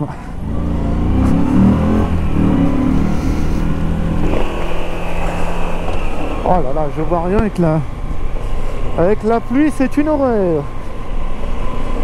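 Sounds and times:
motorcycle engine accelerating: 0.3 - 9.1.

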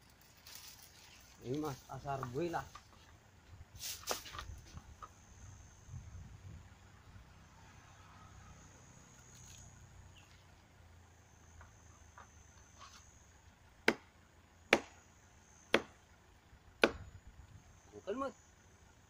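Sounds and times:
sharp knocks or chops: 16.8 - 17.1.

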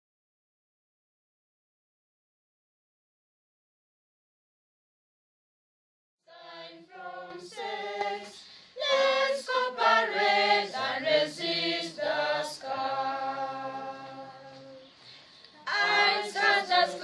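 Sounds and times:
choir singing a cappella: 6.3 - 17.0.

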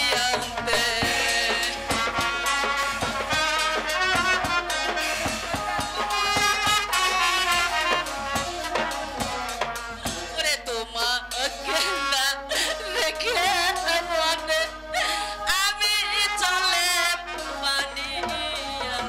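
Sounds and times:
drum strokes: 0.0 - 12.2.

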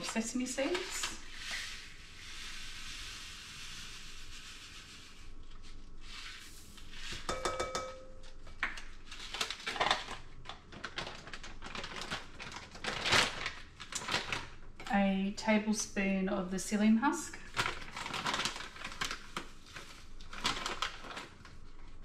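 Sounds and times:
seeds pouring into a bowl: 0.0 - 7.0
plastic packets crinkling: 8.9 - 14.7, 17.4 - 22.0.

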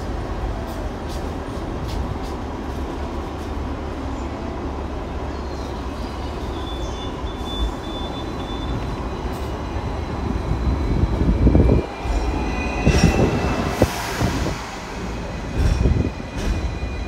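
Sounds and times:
tram wheels rumbling on rail: 0.0 - 17.0
high wheel squeal: 6.2 - 9.6.

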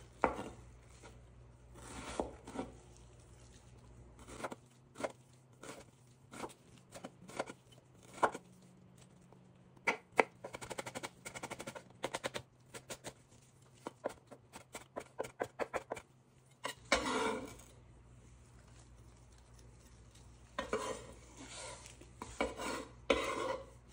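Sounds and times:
knife chopping on wooden board: 0.2 - 0.6, 13.8 - 16.0
knife blade scraping board: 16.6 - 17.6, 20.6 - 23.8.

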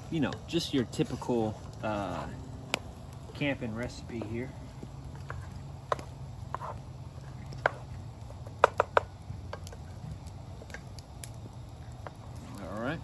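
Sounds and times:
wooden spoon knocking pot: 8.6 - 9.1.

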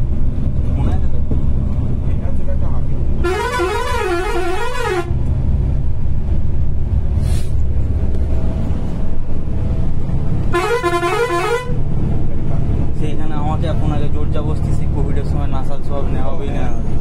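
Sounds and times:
bus engine and tyres rumbling: 0.0 - 17.0
warbling vehicle horn: 3.2 - 5.2, 10.5 - 11.8.

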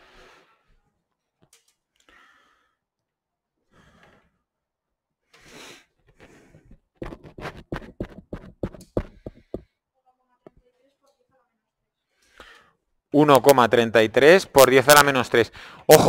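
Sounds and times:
quick sharp taps: 7.0 - 9.7
breathy exhale: 15.6 - 15.9.

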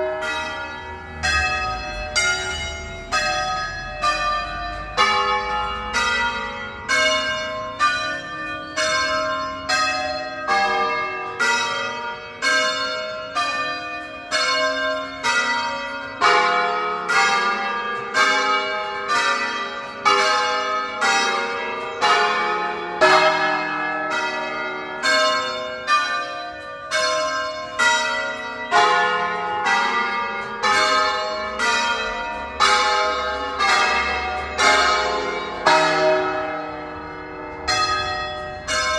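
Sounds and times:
church bells ringing: 0.0 - 38.9.

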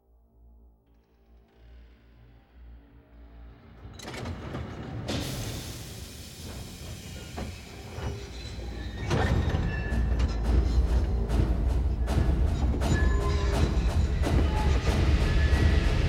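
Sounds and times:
loud hiss of steam: 5.1 - 8.8.

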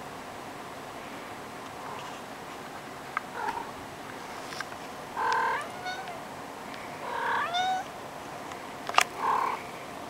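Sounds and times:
cat meowing: 3.4 - 3.7, 5.2 - 6.2, 7.0 - 7.9.

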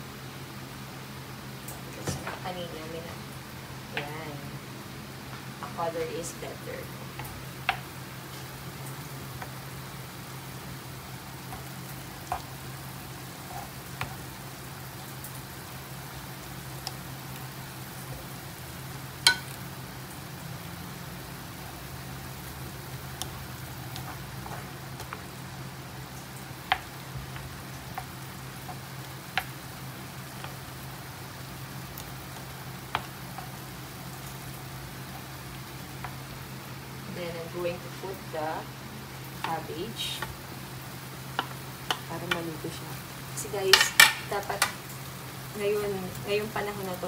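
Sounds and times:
food sizzling in a frying pan: 0.0 - 47.0
wooden spoon knocking on pan: 19.2 - 19.6, 26.6 - 28.1, 41.3 - 42.4.

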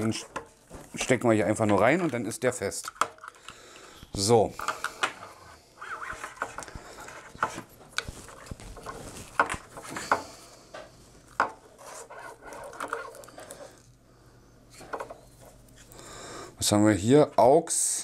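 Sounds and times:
cables rubbing and rustling: 5.2 - 10.2, 11.0 - 14.0.

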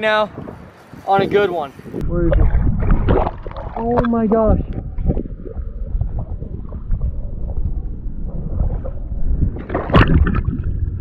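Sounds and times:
underwater water rush: 2.3 - 11.0.

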